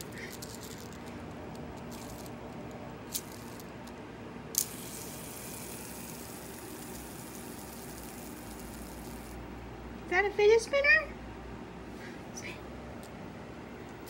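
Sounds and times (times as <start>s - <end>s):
fidget spinner clicks on tile floor: 0.0s - 9.4s
fidget spinner whirring: 0.0s - 9.5s.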